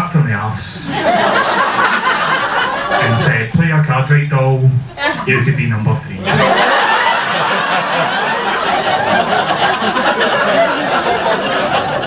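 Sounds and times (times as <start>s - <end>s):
audience laughing: 0.8s - 3.6s, 4.9s - 12.0s.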